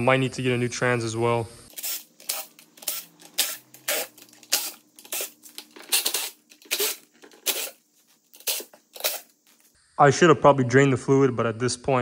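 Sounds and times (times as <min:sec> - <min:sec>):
hand tool scraping clicks: 0:01.7 - 0:09.3.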